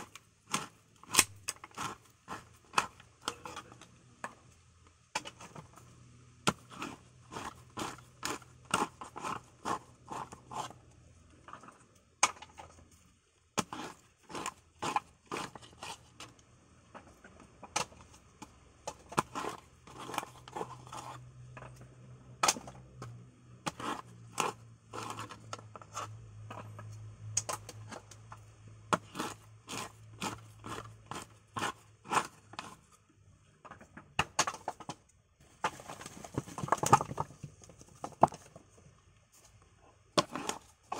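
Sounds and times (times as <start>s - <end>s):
tool prying coconut meat: 0.0s - 4.4s, 6.4s - 10.8s, 13.6s - 32.9s, 40.2s - 40.9s.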